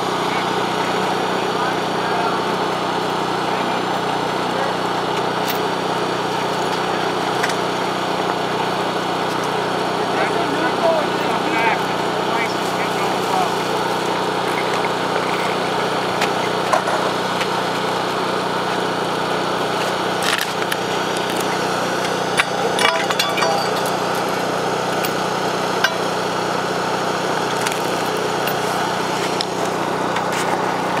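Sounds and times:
engine running steadily: 0.0s - 31.0s
clinks and knocks: 22.3s - 26.2s.

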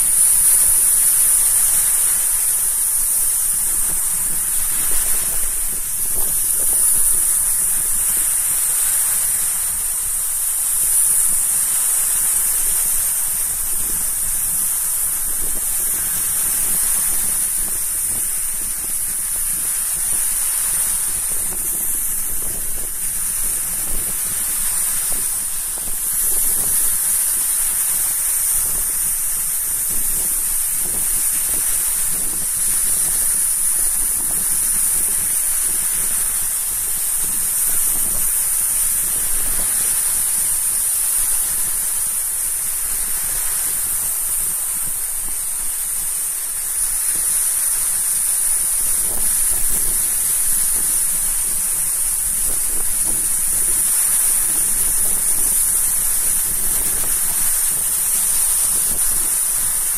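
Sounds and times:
high-pitched hiss: 0.0s - 59.9s
waves breaking on shore: 0.0s - 59.9s.

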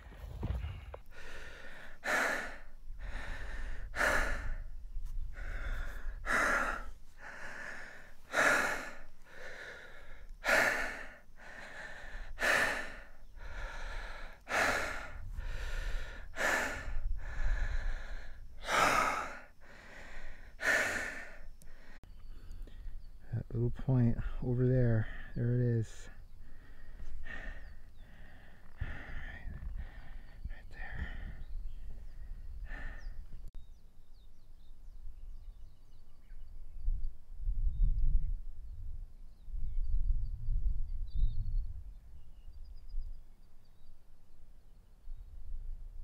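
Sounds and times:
man breathing hard: 0.0s - 22.9s, 26.0s - 33.5s.

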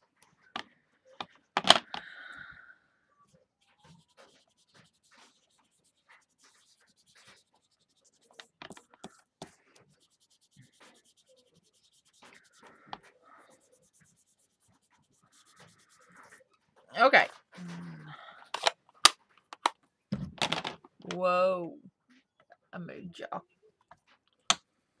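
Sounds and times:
ink applicator scratching on card: 3.7s - 16.4s.

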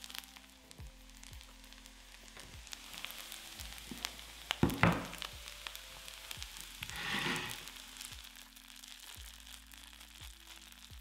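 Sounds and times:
soft background music: 0.0s - 11.0s
stone bowl clunking onto tray: 4.6s - 5.2s.

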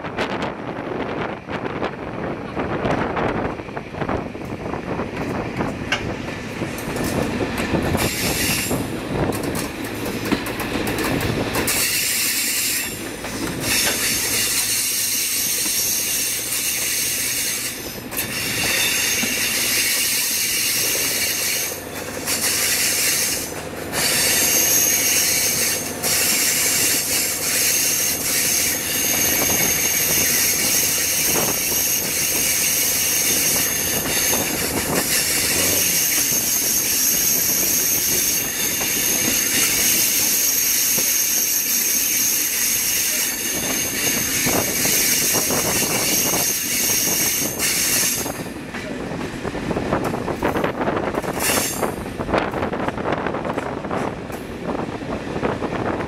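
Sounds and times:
diesel railcar running: 0.0s - 56.0s
train wheels squealing: 6.9s - 49.0s, 50.5s - 52.1s.

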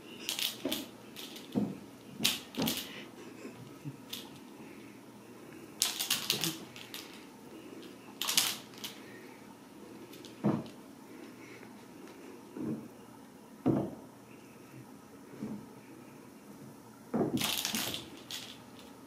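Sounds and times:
kittens clicking and rattling: 0.1s - 4.6s, 5.8s - 9.1s, 17.4s - 19.0s.

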